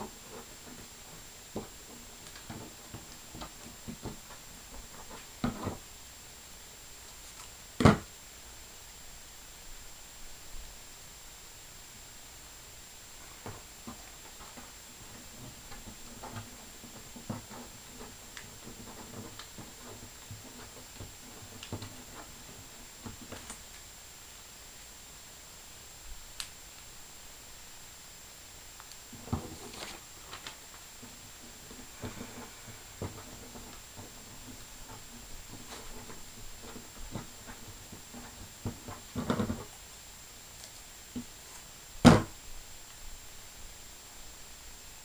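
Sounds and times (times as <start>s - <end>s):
paper folding and rustling: 29.0s - 39.8s.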